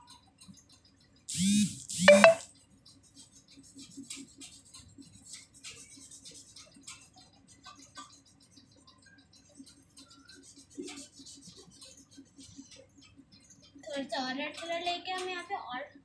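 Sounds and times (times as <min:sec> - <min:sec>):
paintbrush scratching on paper: 0:02.9 - 0:13.8.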